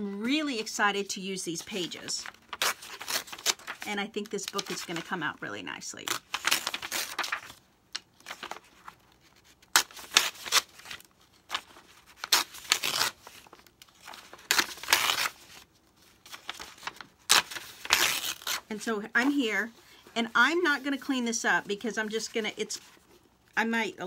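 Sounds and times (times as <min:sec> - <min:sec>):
paper pages ripping: 0:02.0 - 0:05.3, 0:06.0 - 0:18.7.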